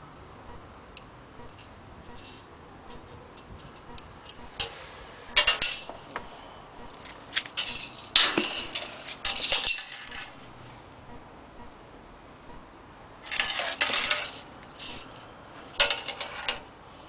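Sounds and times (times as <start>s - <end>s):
tape measure clicking and rattling: 7.1s - 10.4s, 13.2s - 16.7s.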